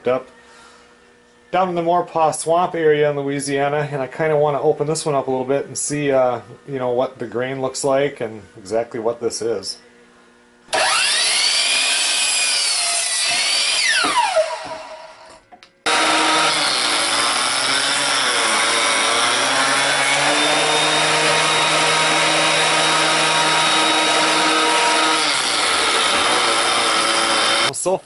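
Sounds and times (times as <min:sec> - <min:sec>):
electric miter saw running: 0:10.7 - 0:27.7
jointer cutting wood: 0:10.7 - 0:27.7.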